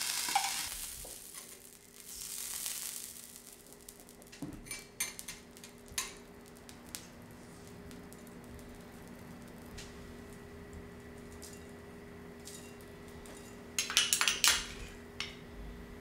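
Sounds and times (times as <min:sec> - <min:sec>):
food sizzling on a griddle: 0:00.0 - 0:08.0
metal utensils clinking: 0:12.4 - 0:15.4.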